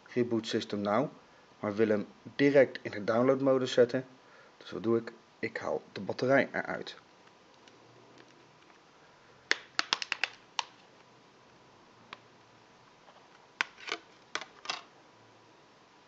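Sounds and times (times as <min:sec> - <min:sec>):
plastic clips unsnapping: 0:09.5 - 0:10.8.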